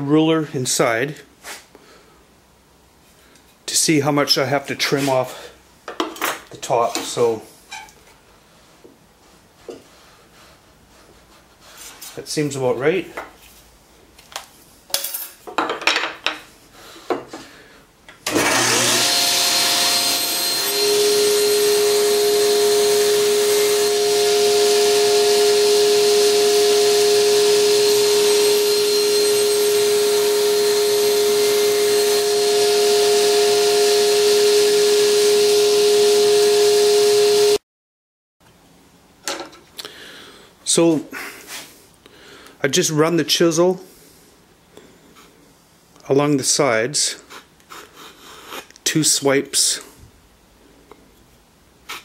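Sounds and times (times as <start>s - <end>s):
table saw running: 18.2s - 37.6s.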